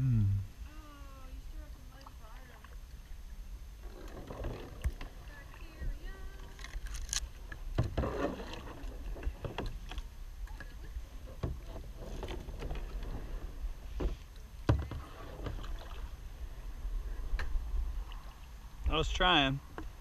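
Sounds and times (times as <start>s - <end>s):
paddle splashes: 1.6s - 20.0s
knocks and scrapes on kayak hull: 3.8s - 6.6s, 7.4s - 16.1s.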